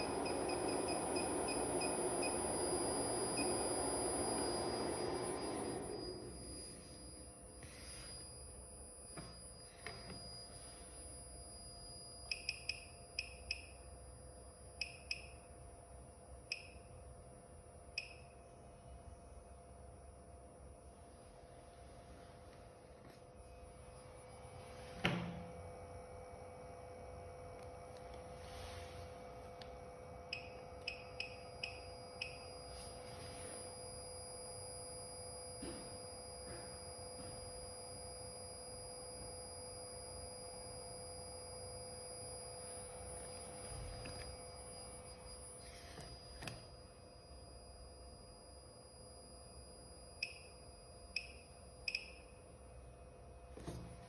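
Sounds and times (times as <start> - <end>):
high electronic key beeps: 0.0 - 13.9, 30.3 - 52.3
faint high whine: 0.0 - 54.0.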